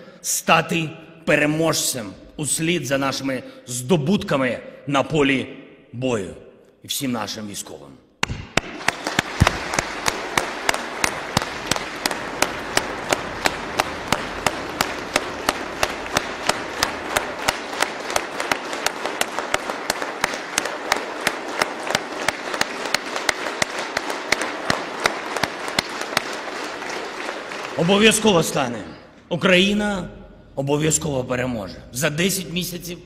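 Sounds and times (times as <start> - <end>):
audience clapping in unison: 8.2 - 29.1.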